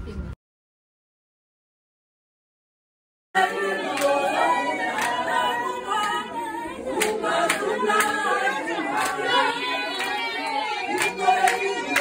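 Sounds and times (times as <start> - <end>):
group singing together: 3.4 - 12.0
voices talking in crowd: 3.4 - 12.0
hand claps: 3.5 - 6.3, 6.9 - 12.0.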